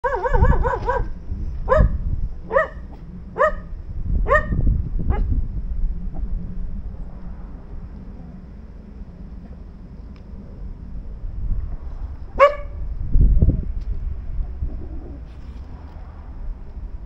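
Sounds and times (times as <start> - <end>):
dog barking: 0.0 - 1.1, 1.7 - 5.3, 12.4 - 12.8.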